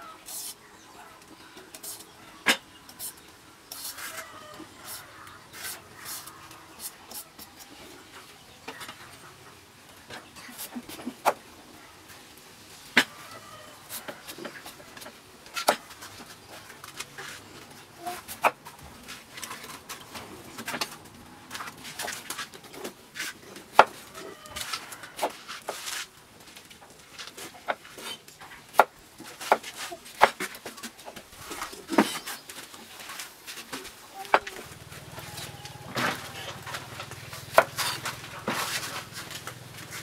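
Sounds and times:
birds calling faintly: 27.4 - 38.4.

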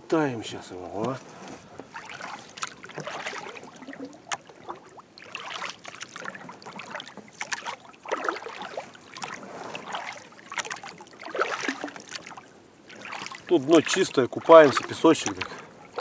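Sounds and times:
oars splashing in water: 1.0 - 16.0
water dripping: 1.9 - 16.0.

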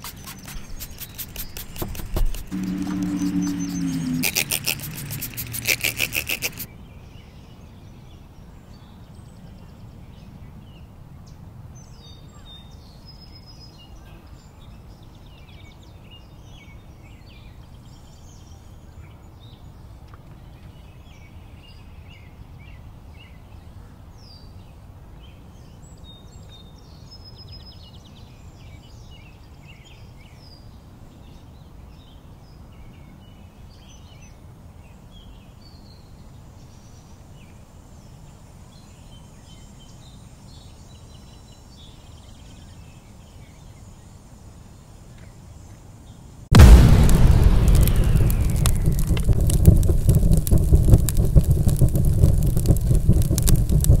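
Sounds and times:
loud rapid rattling burst: 0.0 - 6.7, 46.5 - 54.0
small birds chirping: 0.0 - 6.7
low outdoor rumble: 0.3 - 6.7, 46.5 - 54.0.

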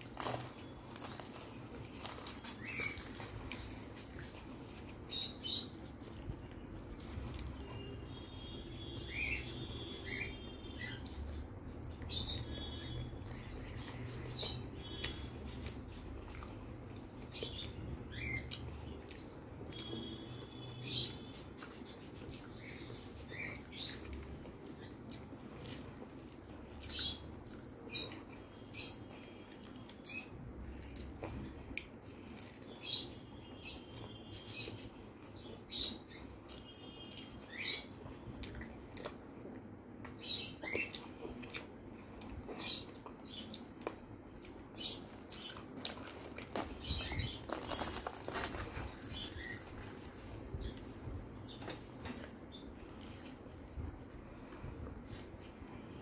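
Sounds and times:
crackly clicks of tearing fried bread: 0.0 - 6.8, 43.5 - 52.4
chewing and mouth smacking: 38.4 - 46.7.

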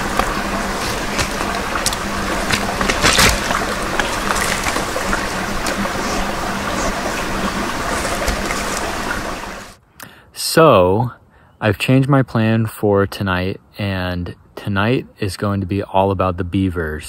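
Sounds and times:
animal stepping in water: 0.0 - 9.4
stream trickling: 0.0 - 9.8.

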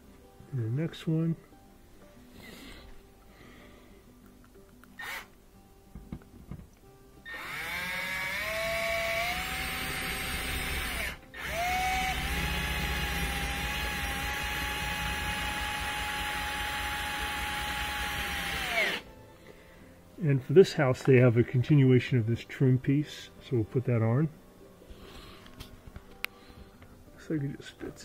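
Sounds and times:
drill motor whine: 7.3 - 19.0.

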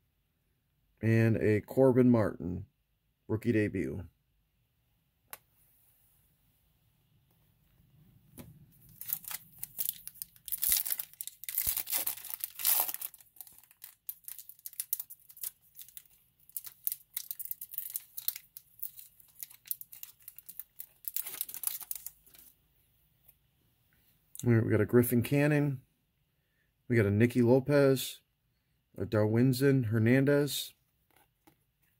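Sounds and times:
wrapper tearing and crinkling: 8.8 - 22.5.

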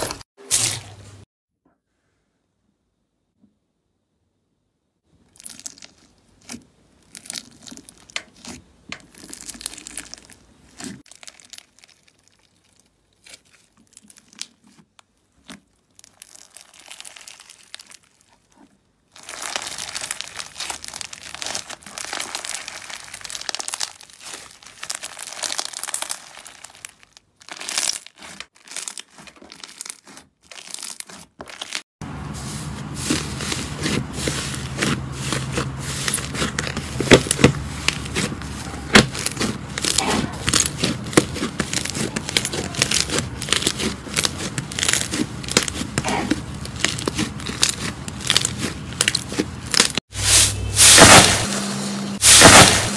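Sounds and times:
slime squishing: 5.1 - 51.4
slime crackling and popping: 5.2 - 31.8, 33.0 - 50.1, 52.2 - 52.9.

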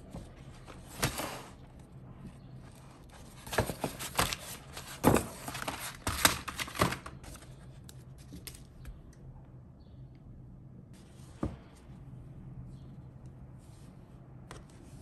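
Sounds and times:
sharp paper crackles: 3.2 - 8.6.

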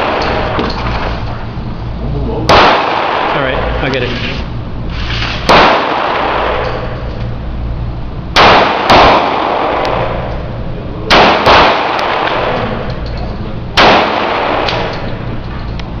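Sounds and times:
pistol shots ringing indoors: 0.0 - 1.1, 2.5 - 3.8, 5.4 - 7.0, 8.3 - 10.4, 11.1 - 13.0, 13.7 - 15.2.

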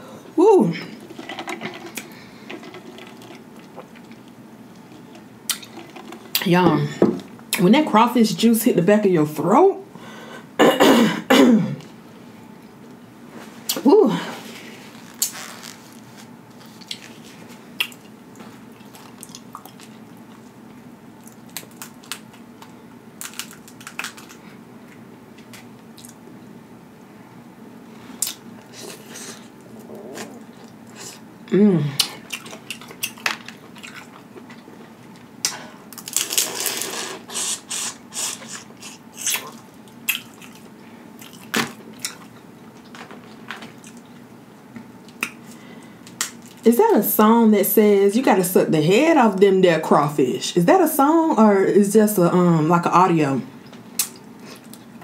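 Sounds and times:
crawfish shells cracking: 21.2 - 24.4
wet sucking and slurping: 36.4 - 39.5.

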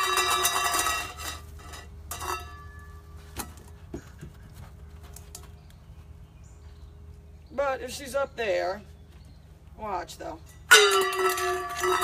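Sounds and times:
metal bowl ringing on concrete: 0.0 - 3.2, 10.4 - 12.0
metal bowl clink: 10.6 - 12.0.

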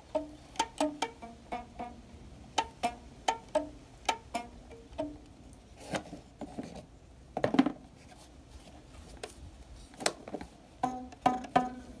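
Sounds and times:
banjo plucked single notes: 0.0 - 5.4, 10.8 - 12.0.

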